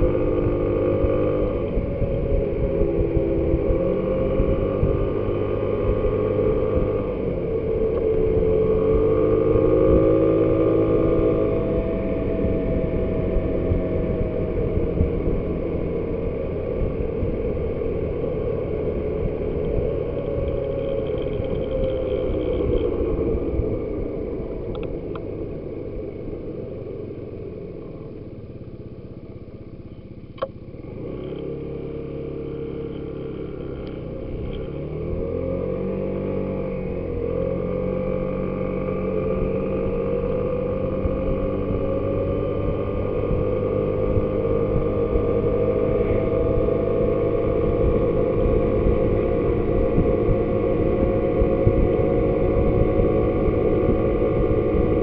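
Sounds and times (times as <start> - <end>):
wind noise on microphone: 0.0 - 27.0, 32.9 - 55.0
scooter engine: 0.0 - 55.0
sharp click: 30.4 - 30.6.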